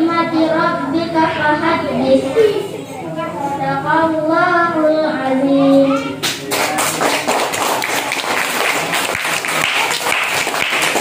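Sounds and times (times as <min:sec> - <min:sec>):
girl singing through loudspeaker: 0:00.0 - 0:06.2
children clapping: 0:06.2 - 0:11.0.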